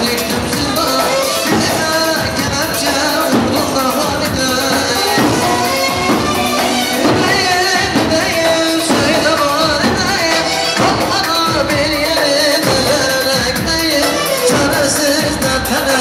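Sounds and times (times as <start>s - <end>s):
live band playing folk dance music: 0.0s - 16.0s
man singing into a microphone: 0.0s - 16.0s.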